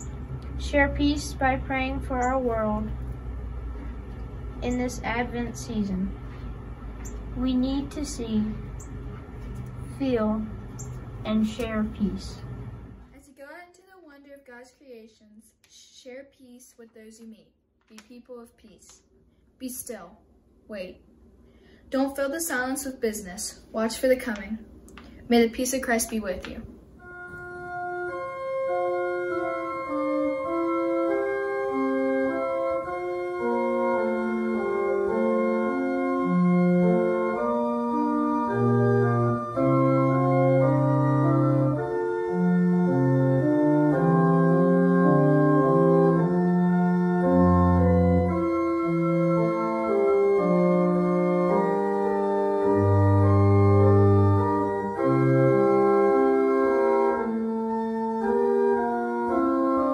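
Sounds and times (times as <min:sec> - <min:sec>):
organ playing a hymn: 0:27.0 - 0:59.9.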